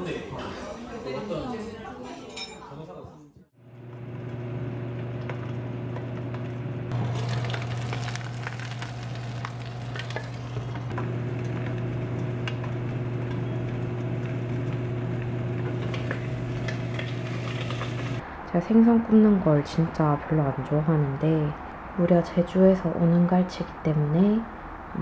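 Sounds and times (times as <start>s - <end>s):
fish sizzling in frying pan: 6.9s - 10.8s.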